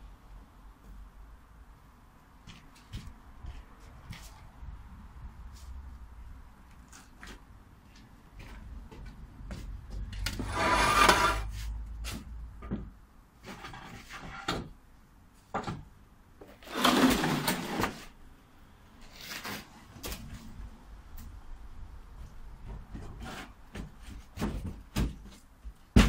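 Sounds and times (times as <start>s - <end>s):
wooden panel scraping: 10.3s - 11.6s.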